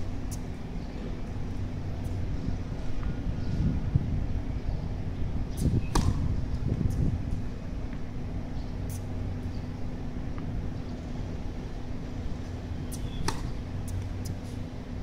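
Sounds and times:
low background hum: 0.0 - 15.0
tennis racket hitting ball: 6.0 - 6.2, 13.2 - 13.6.

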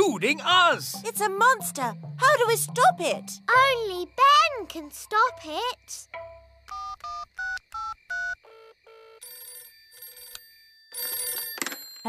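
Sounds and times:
cartoon phone keypad beeps: 6.7 - 9.2
telephone bell ringing: 6.7 - 12.0.

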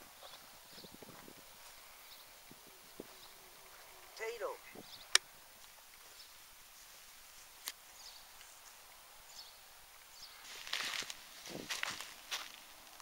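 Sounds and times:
footsteps on dry grass: 10.3 - 13.0.

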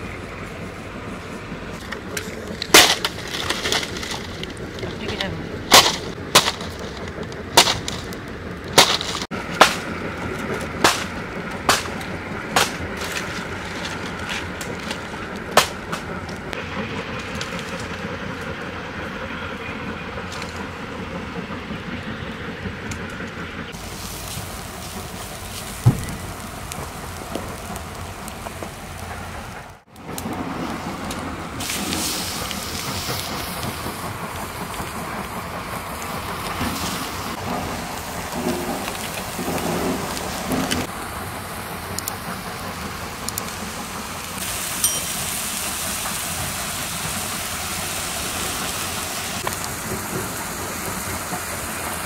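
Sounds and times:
wood fire hissing: 0.0 - 52.0
palm stalks snapping: 1.9 - 4.6, 5.7 - 6.9, 7.6 - 8.1, 8.7 - 9.9, 10.8 - 16.1.

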